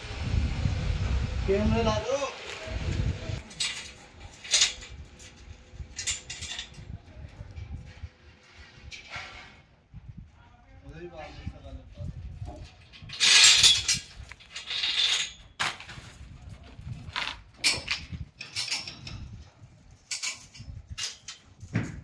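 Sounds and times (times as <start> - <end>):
clattering and scraping: 3.4 - 9.8, 11.0 - 22.0.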